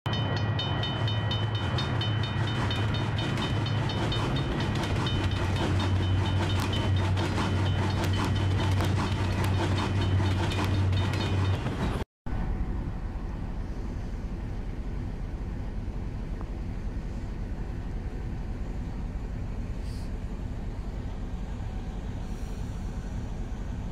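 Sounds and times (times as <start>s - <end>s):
level-crossing bell ringing: 0.1s - 8.7s
passing train rumble and clatter: 0.1s - 23.9s.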